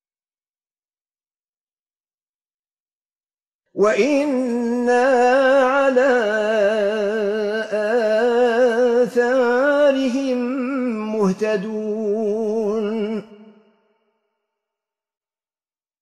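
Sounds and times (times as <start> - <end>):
man reciting with held note: 3.8 - 13.3.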